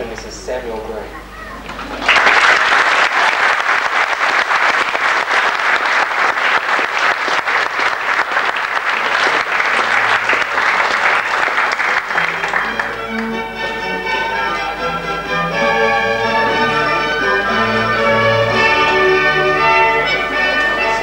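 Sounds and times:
guests applauding: 0:01.6 - 0:14.5.

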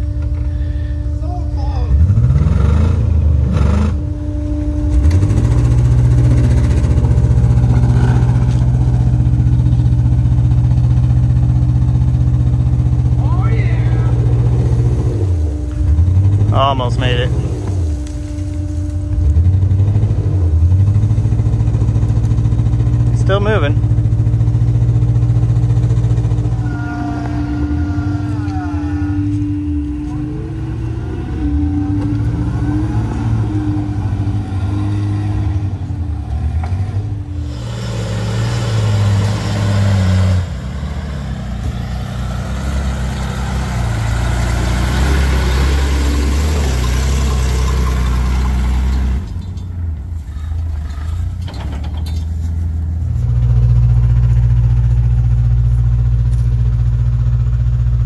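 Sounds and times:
truck engines revving under load: 0:00.0 - 0:58.0.

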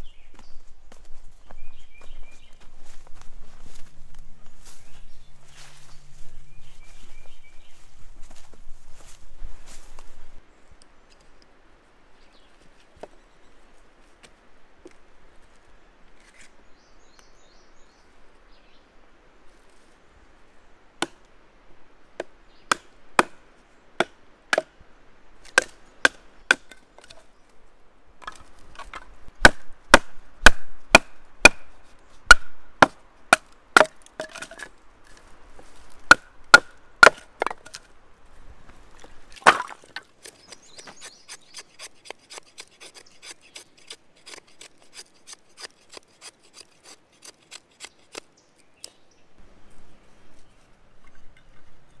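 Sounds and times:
baton striking knife in log: 0:28.2 - 0:31.7, 0:32.3 - 0:34.7, 0:36.1 - 0:37.9, 0:39.4 - 0:40.0.

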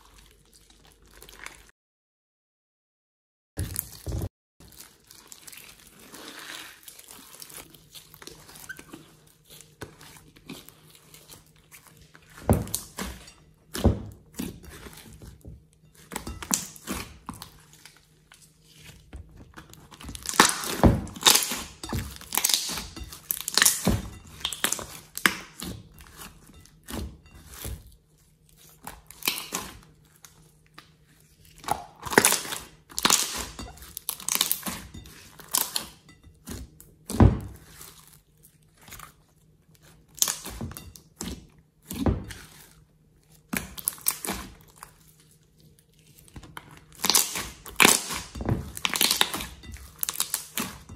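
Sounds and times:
wet squelches of slime: 0:00.0 - 0:01.7, 0:03.6 - 0:13.0.

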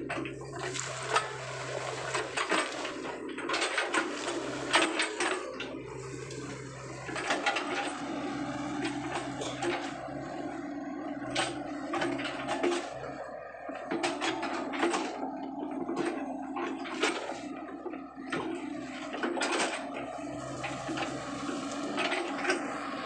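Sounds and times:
excavator diesel engine running: 0:00.0 - 0:23.0
brush crackling and rustling: 0:00.4 - 0:13.0, 0:20.0 - 0:22.9.

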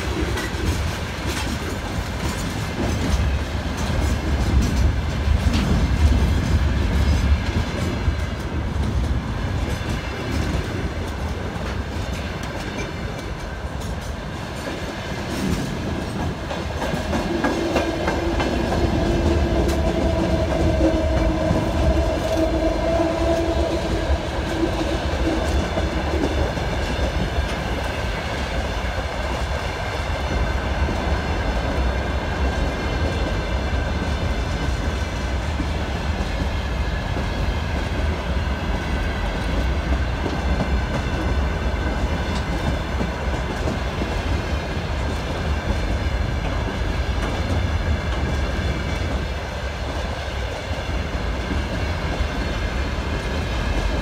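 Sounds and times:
train wagons rumbling past: 0:00.0 - 0:54.0.

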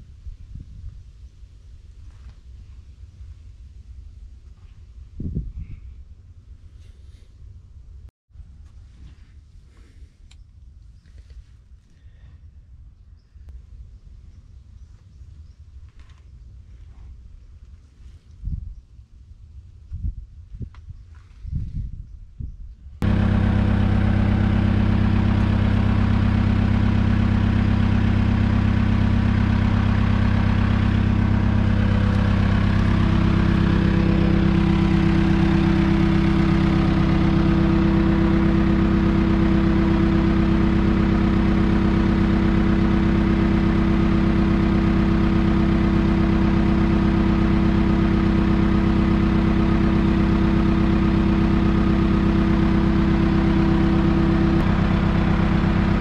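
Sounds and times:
engine idling: 0:23.0 - 0:56.0.

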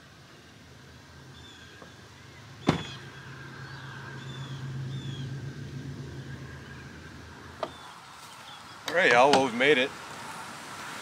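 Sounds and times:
bird chirping: 0:01.3 - 0:05.5, 0:06.1 - 0:09.0
truck door slamming: 0:02.6 - 0:03.1.

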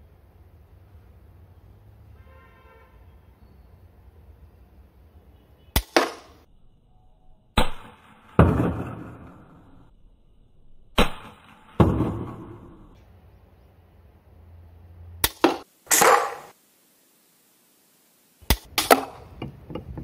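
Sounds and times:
loud ringing crack: 0:07.6 - 0:09.9, 0:10.9 - 0:13.0, 0:15.2 - 0:16.6.

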